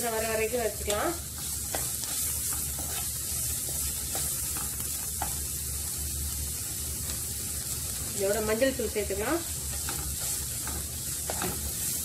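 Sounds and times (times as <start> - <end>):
onions sizzling in hot oil: 0.0 - 12.0
wooden spatula scraping and tapping: 0.8 - 5.5, 9.6 - 12.0.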